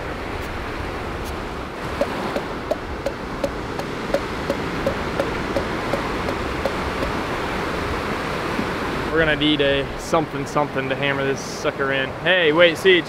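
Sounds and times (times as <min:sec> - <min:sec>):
surf breaking on beach: 0:00.0 - 0:10.5
regular short knocks: 0:01.9 - 0:07.2.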